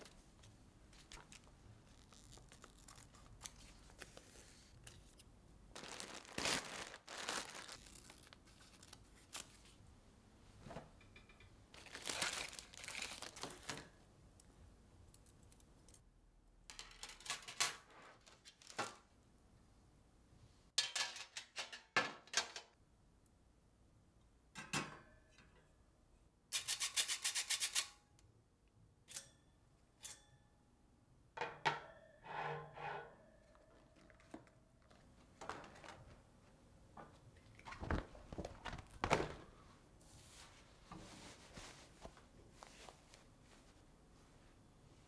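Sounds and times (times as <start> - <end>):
metal trays clinking and clattering: 20.8 - 22.7.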